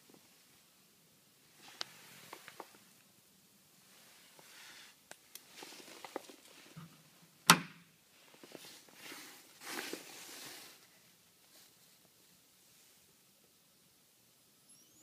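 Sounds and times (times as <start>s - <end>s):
rustling: 1.4s - 3.1s, 3.8s - 7.2s, 8.1s - 13.2s.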